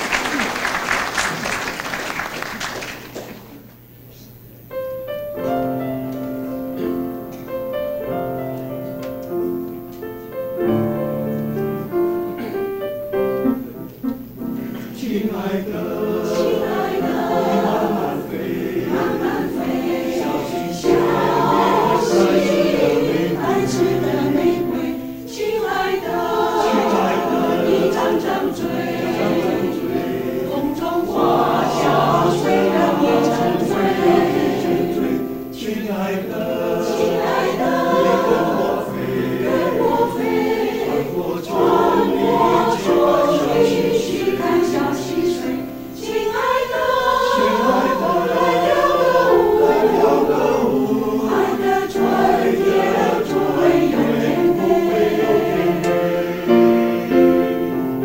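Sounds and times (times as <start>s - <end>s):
mixed choir singing: 14.4s - 58.0s.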